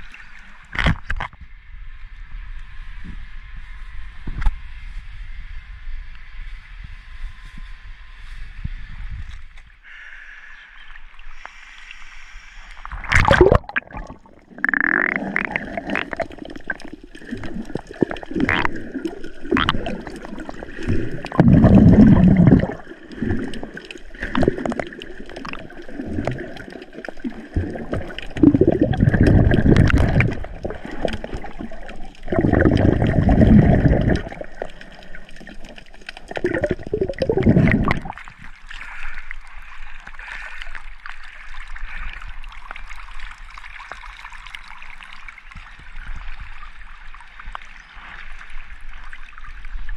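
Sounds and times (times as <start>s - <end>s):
water gurgling and splashing: 12.5s - 49.9s
water sloshing surges: 12.9s - 40.4s.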